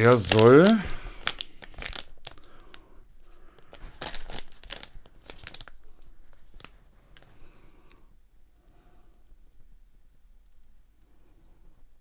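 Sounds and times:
packet crinkling and tearing: 0.0 - 2.8, 3.5 - 7.3.

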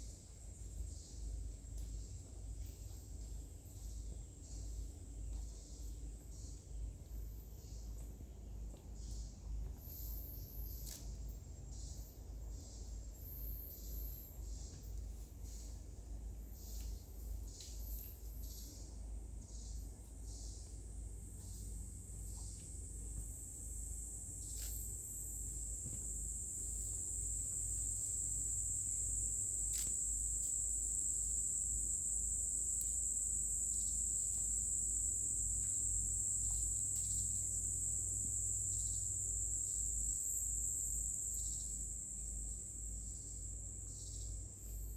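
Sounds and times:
insects droning: 0.0 - 44.9.

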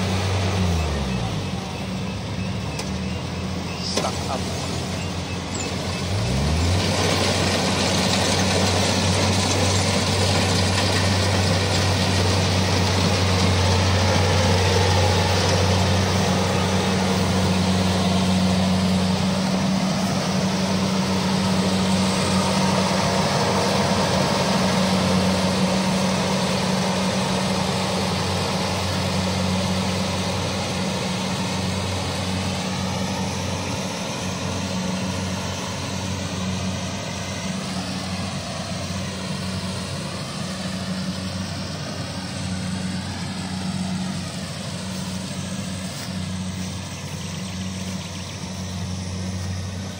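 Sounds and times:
diesel engine humming: 0.0 - 49.9.

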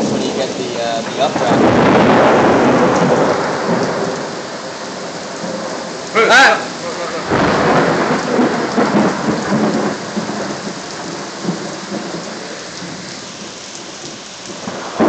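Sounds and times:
heavy rain pouring: 0.0 - 15.0
thunder rumbling: 0.0 - 15.0.

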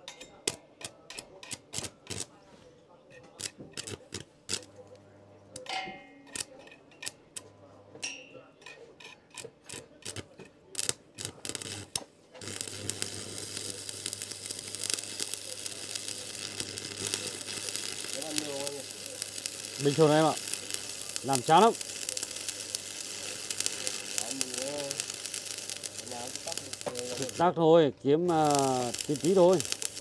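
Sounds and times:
arc welding crackling hiss: 1.5 - 2.3, 3.4 - 4.9, 9.7 - 27.6, 28.2 - 30.0.

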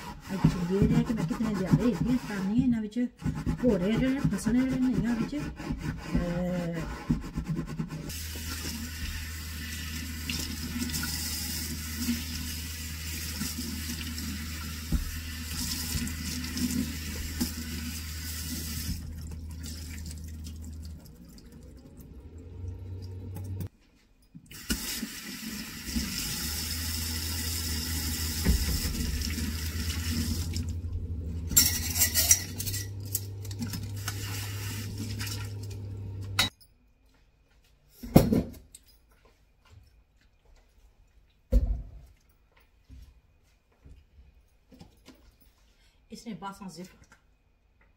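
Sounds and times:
sponge scrubbing basket: 0.0 - 9.3
tap water running into sink: 8.1 - 23.7, 24.5 - 30.9
low hum: 30.1 - 33.6.

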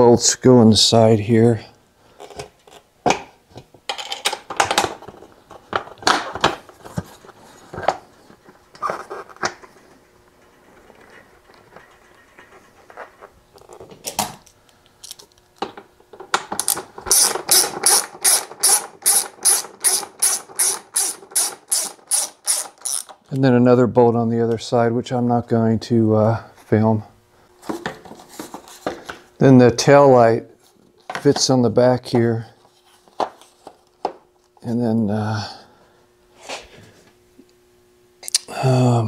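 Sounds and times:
socket ratchet clicking: 16.6 - 23.2.

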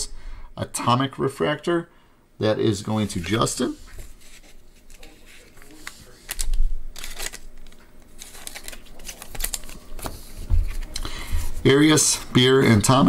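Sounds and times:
trading cards rustling and sliding: 3.0 - 12.3.

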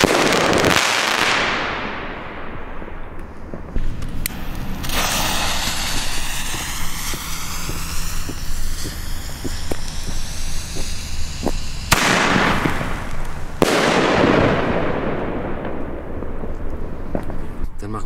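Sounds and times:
firework shell bursting: 0.0 - 17.6
firework shell launch bang: 3.2 - 16.4.

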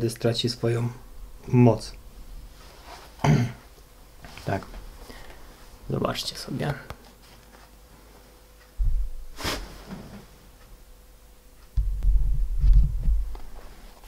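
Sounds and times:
sneaker handling thumps and rumbling: 8.8 - 10.2.

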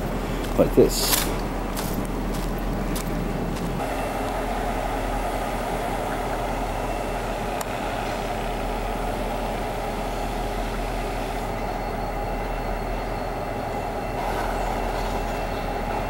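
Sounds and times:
diesel locomotive engines droning: 0.0 - 16.0.

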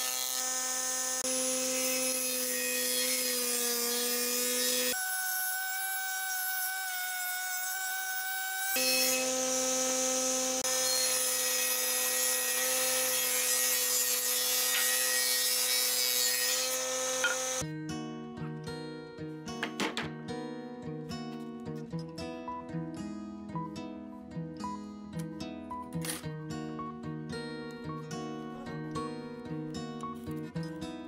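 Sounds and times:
cutters shaving wood: 0.0 - 17.6.

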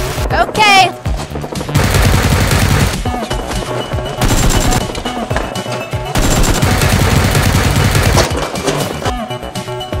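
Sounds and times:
background music: 0.0 - 10.0
rapid automatic gunfire: 1.7 - 3.1, 4.2 - 4.9, 6.2 - 8.4.

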